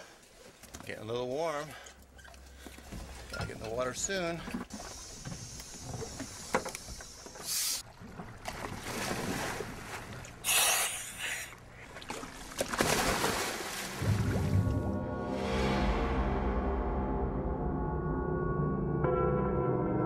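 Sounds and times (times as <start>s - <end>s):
water churning: 1.7s - 14.8s
divers splashing into water: 12.1s - 14.7s.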